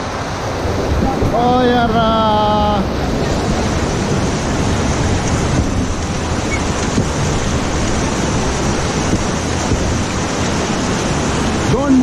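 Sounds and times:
whitewater rapids rushing: 0:00.0 - 0:12.0.

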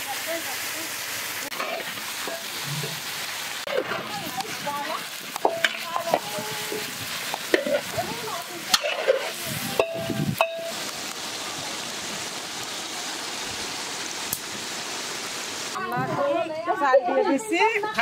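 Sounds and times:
hot oil sizzling: 0:00.0 - 0:18.0
metal spatula scraping a pan: 0:01.5 - 0:03.0, 0:03.6 - 0:04.2, 0:05.3 - 0:10.7.

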